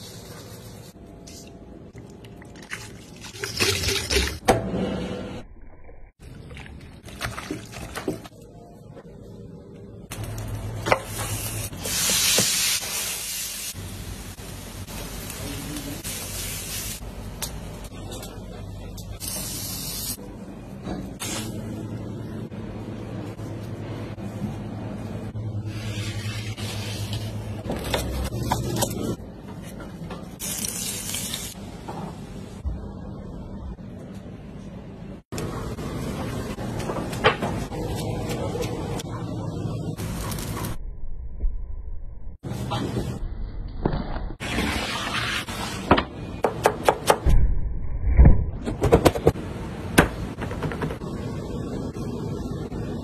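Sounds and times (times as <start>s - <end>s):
low hum: 40.6s - 42.4s, 47.3s - 48.7s.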